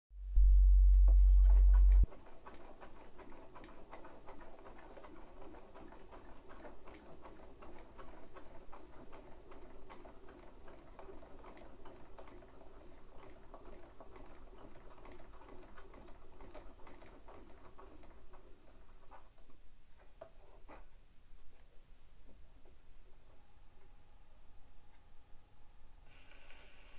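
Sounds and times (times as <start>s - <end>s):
loud low hum: 0.2s - 2.1s.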